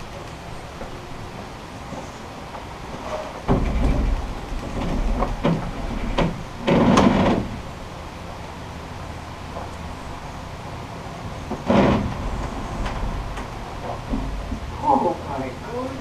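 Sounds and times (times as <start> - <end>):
wooden hull thumps and knocks: 3.4 - 7.6, 11.5 - 14.8.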